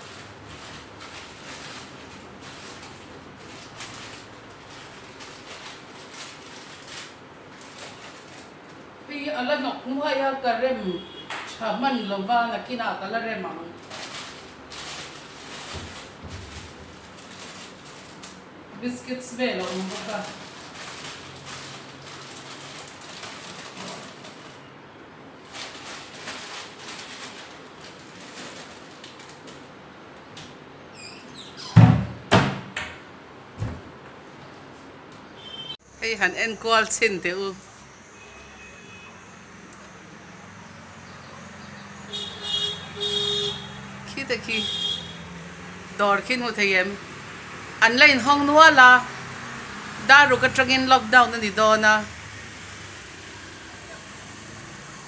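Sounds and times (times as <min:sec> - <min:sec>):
plastic packets crinkling: 0:00.0 - 0:09.0, 0:13.8 - 0:18.6, 0:19.6 - 0:24.7, 0:25.4 - 0:29.7
steady room hiss: 0:00.0 - 0:55.0.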